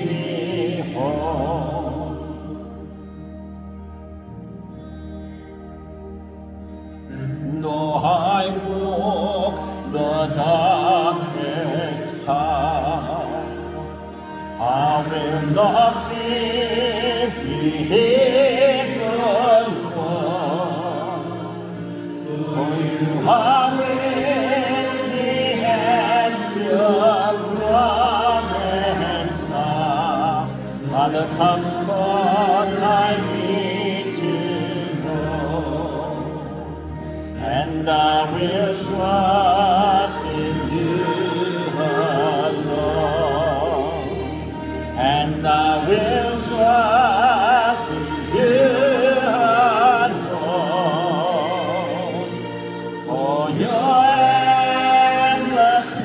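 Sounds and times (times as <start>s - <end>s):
low accompaniment chords: 0.0s - 56.0s
person singing a hymn: 0.0s - 56.0s.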